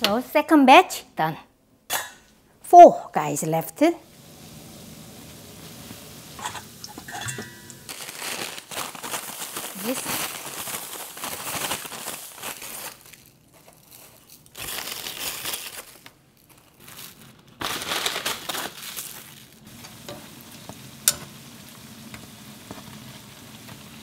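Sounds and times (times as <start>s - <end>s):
oil sizzling: 3.4s - 13.0s, 18.4s - 24.0s
paper bag rustling: 7.8s - 20.0s.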